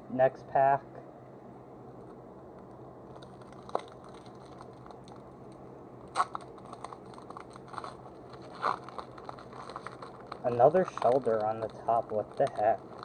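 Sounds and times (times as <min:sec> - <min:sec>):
foil wrapper tearing: 0:03.1 - 0:05.2, 0:06.1 - 0:13.0
foil wrapper crinkling: 0:03.1 - 0:13.0.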